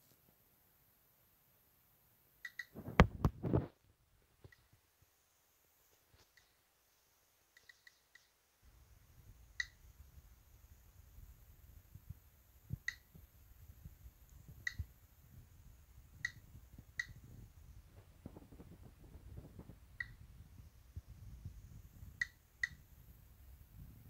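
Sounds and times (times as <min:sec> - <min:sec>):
geiger counter clicking: 0:02.4 - 0:03.1, 0:07.5 - 0:08.3, 0:09.5 - 0:09.9, 0:12.7 - 0:13.4, 0:14.3 - 0:15.0, 0:16.0 - 0:17.5, 0:19.5 - 0:20.3, 0:22.0 - 0:23.0.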